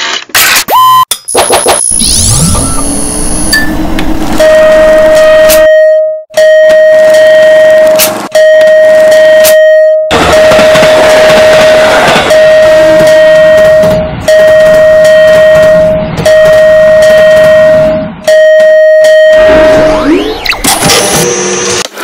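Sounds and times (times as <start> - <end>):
crossing alarm high tone: 4.4 - 20.4.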